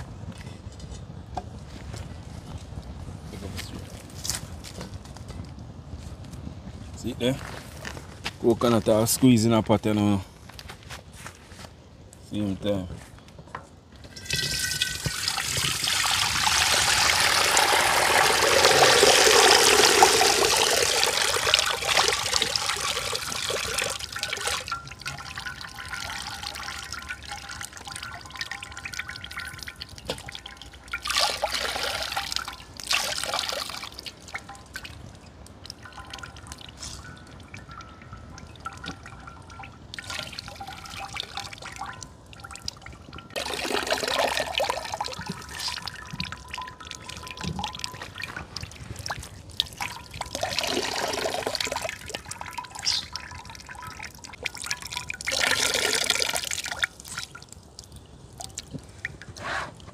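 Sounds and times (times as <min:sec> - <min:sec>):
coconut milk pouring into a pot: 0:14.1 - 0:34.8, 0:43.4 - 0:48.8, 0:49.7 - 0:57.4
liquid splashes: 0:14.1 - 0:59.8.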